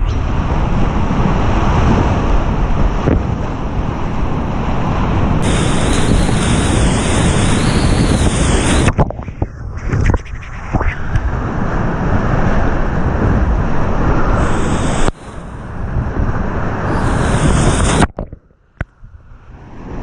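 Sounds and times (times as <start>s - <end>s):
water splashing on microphone: 14.3s - 18.6s.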